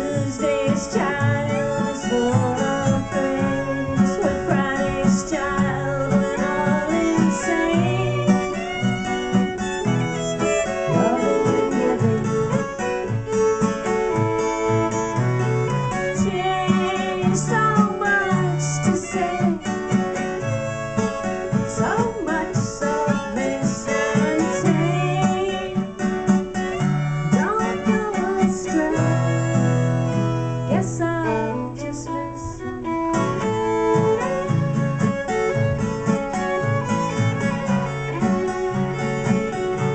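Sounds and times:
woman singing: 0.0 - 12.8, 15.6 - 34.6
strummed acoustic guitar: 0.0 - 39.9
violin: 0.0 - 39.9.

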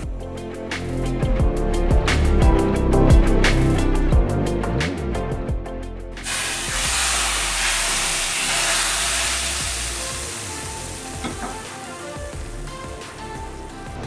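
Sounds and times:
hot oil sizzling in a pan: 6.2 - 13.3.

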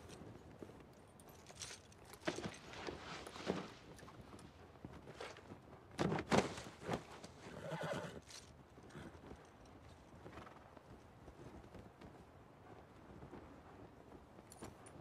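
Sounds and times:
hooves stamping: 0.0 - 15.0
horse whinny: 7.4 - 8.2.

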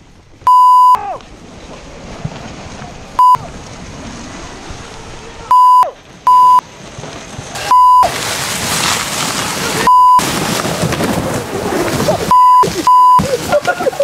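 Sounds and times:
steady rushing noise: 0.0 - 14.0
censor bleeps: 0.5 - 1.0, 3.2 - 3.4, 5.5 - 6.6, 7.7 - 8.1, 9.9 - 10.2, 12.3 - 13.2.

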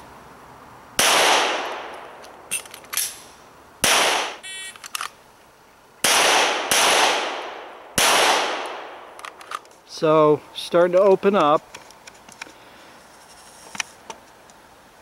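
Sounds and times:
pistol shots: 1.0 - 2.1, 3.8 - 4.4, 6.0 - 9.2.

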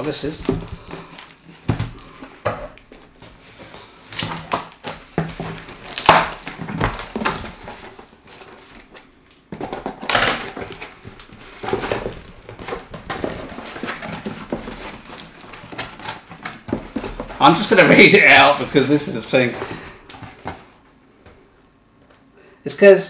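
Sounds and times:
packing tape ripping: 4.1 - 9.0
cardboard box tearing: 4.2 - 8.9.

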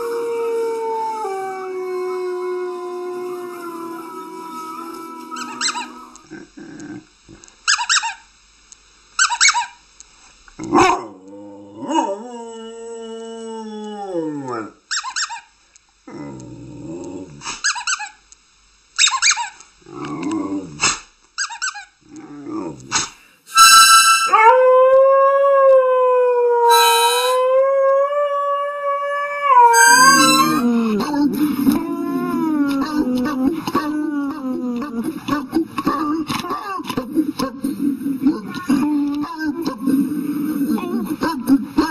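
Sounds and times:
dogs howling: 0.0 - 6.2, 24.3 - 35.1.

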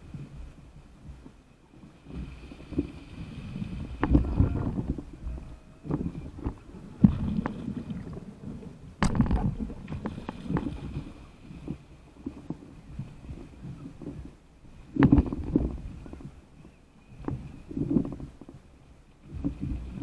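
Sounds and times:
water slapping paddle board: 0.0 - 16.4, 17.1 - 20.0
water splashes: 1.8 - 16.3.

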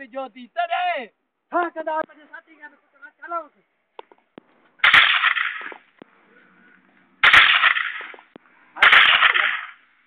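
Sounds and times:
gunfire bursts: 4.8 - 5.8, 7.2 - 8.2, 8.8 - 9.8.

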